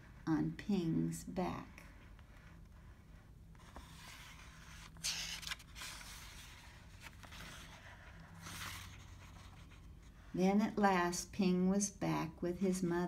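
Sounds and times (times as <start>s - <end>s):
paper pages rustling: 2.0s - 10.2s.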